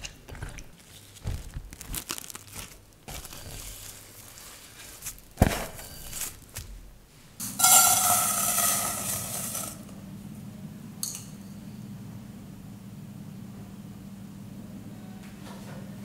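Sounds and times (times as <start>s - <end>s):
cooktop hum: 0.0s - 11.6s
sugar pouring into metal pan: 7.4s - 9.9s.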